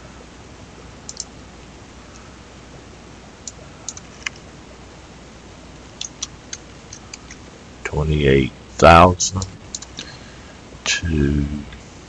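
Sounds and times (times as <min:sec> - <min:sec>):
low background noise: 0:00.0 - 0:12.0
keyboard keystrokes: 0:01.1 - 0:01.3, 0:06.0 - 0:07.4
mouse clicks: 0:01.1 - 0:01.3.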